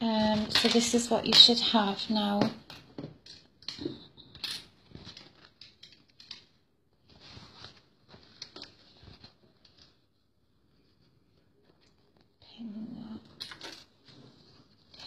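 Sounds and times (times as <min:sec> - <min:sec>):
fabric rustling: 0:04.7 - 0:12.4.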